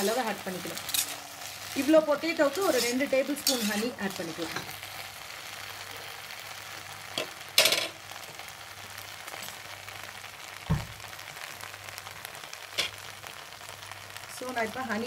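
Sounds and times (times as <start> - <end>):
potatoes sizzling in a wok: 0.0 - 15.0
dull thump: 10.7 - 11.0.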